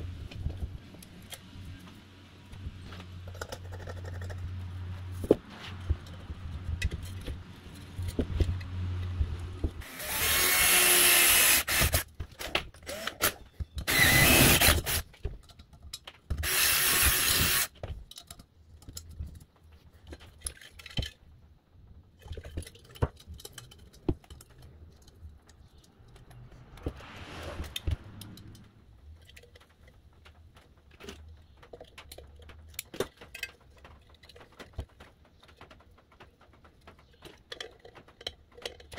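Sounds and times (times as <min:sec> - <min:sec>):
small clicks and knocks of parts: 0:00.2 - 0:09.8, 0:14.6 - 0:26.9, 0:28.2 - 0:38.9
power drill boring into metal: 0:09.8 - 0:12.0, 0:12.9 - 0:15.0, 0:16.4 - 0:17.7.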